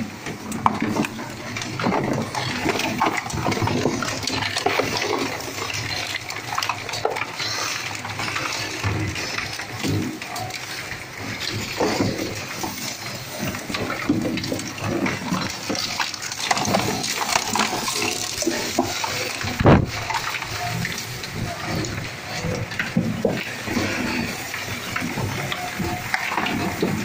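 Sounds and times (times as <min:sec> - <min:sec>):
plastic cracking and grinding: 0:00.0 - 0:27.0
shredder running: 0:00.0 - 0:27.0.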